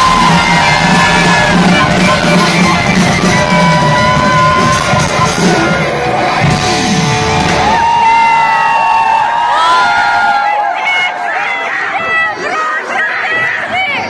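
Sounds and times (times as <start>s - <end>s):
person singing: 0.0s - 5.9s
live concert music with beat: 0.0s - 12.4s
crowd whooping and shouting: 0.0s - 14.0s.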